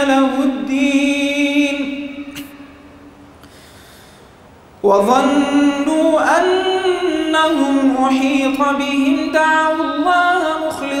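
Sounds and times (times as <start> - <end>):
man chanting melodically: 0.0 - 2.6, 4.8 - 11.0.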